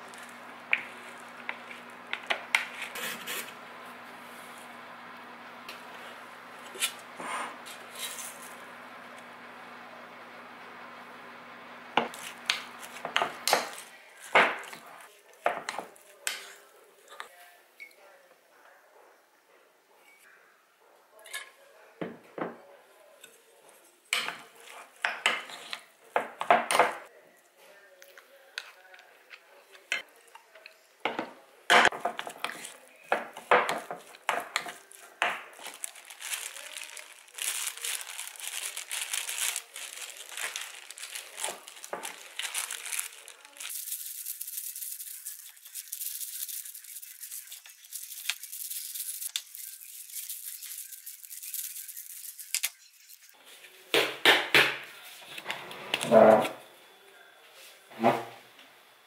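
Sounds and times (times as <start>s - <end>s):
plastic glove crinkling: 0.0s - 3.5s, 6.1s - 8.7s, 12.1s - 16.2s, 31.9s - 53.5s.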